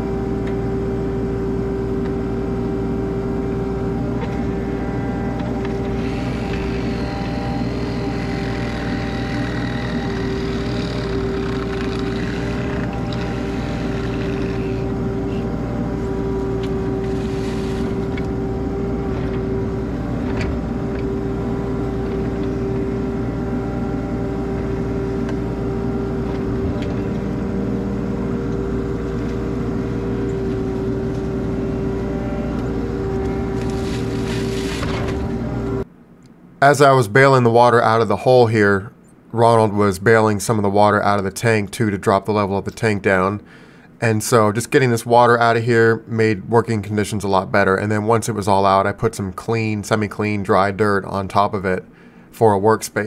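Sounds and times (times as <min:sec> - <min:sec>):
diesel engine running: 0:00.0 - 0:36.1.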